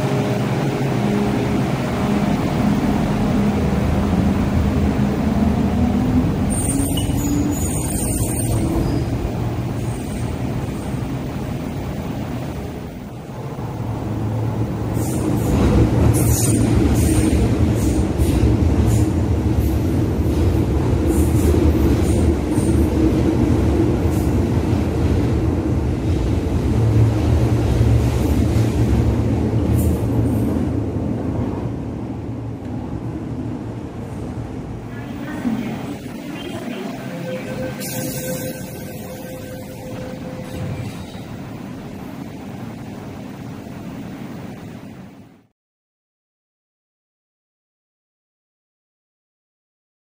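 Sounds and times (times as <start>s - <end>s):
train rumbling past: 0.0s - 45.1s
wheels squeaking on rails: 6.4s - 9.2s, 35.2s - 41.4s.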